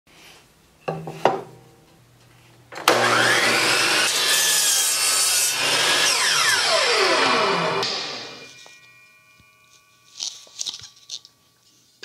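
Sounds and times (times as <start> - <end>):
miter saw motor whining: 2.8 - 8.6
saw blade cutting wood: 2.8 - 8.9.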